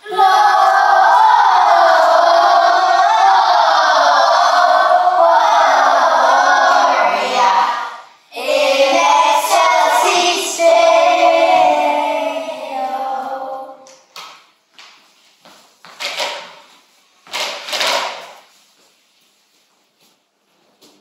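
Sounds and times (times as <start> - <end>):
children singing: 0.0 - 13.9.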